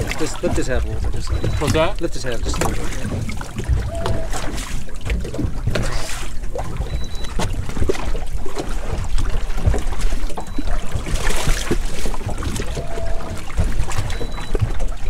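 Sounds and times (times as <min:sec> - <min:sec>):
water splashing and sloshing: 0:00.0 - 0:15.0.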